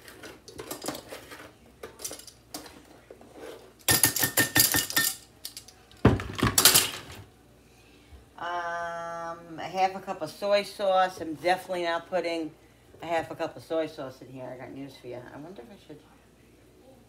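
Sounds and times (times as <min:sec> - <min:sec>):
spoon clattering on glass: 0:03.9 - 0:05.3.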